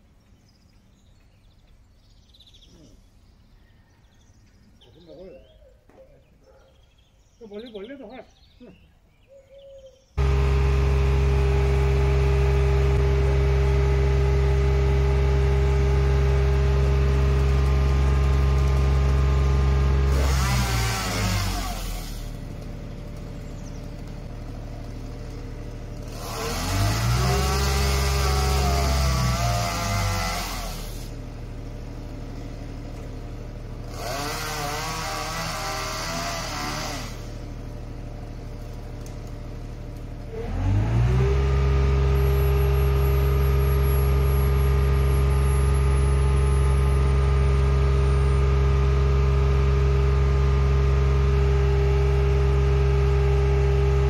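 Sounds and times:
truck engine revving: 10.2 - 54.0.

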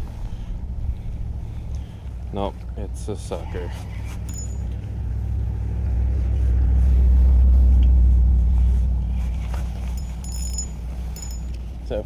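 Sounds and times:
low rumble: 0.0 - 11.9
faint metallic clinks: 4.2 - 4.9, 9.8 - 12.0.

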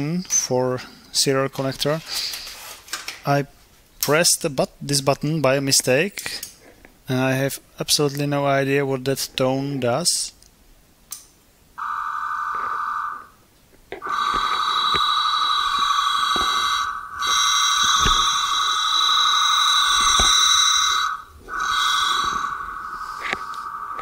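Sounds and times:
higher modem tones: 11.8 - 24.0
modem steady tone: 11.8 - 24.0.

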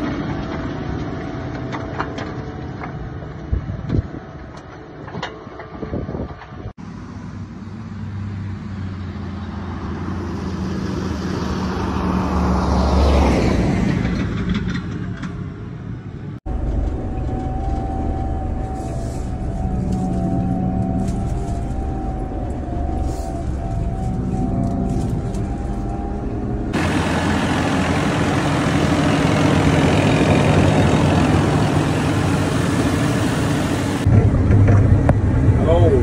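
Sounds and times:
diesel tractor engine running: 16.4 - 36.0.

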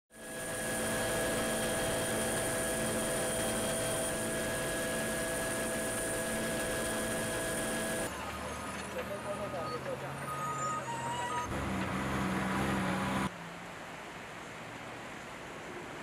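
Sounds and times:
helicopter rushing noise: 0.1 - 8.1
helicopter whining tones: 0.2 - 8.1.

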